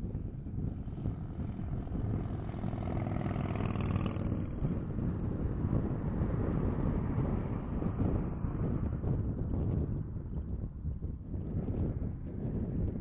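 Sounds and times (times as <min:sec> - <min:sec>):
wind buffeting microphone: 0:00.0 - 0:13.0
engine passing by: 0:00.5 - 0:10.0.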